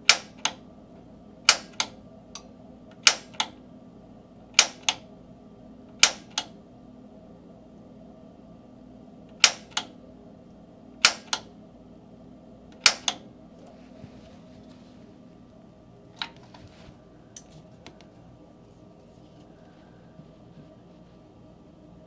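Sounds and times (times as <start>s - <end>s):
piezo igniter clicking: 0.0s - 0.6s, 1.4s - 3.6s, 4.5s - 5.0s, 5.9s - 6.5s, 9.3s - 9.9s, 11.0s - 11.5s, 12.7s - 13.2s.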